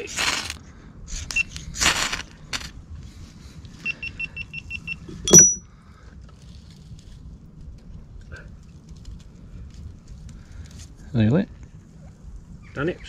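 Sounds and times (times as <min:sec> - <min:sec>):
short high electronic beeps: 0:05.3 - 0:05.6.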